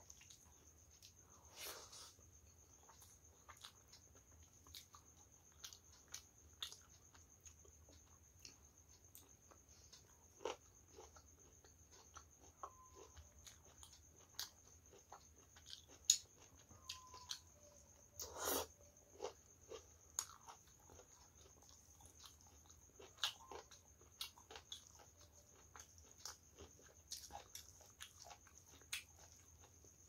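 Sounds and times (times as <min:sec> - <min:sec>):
faint high-pitched whine: 0:00.0 - 0:30.0
chewing and lip smacks: 0:19.2 - 0:29.7.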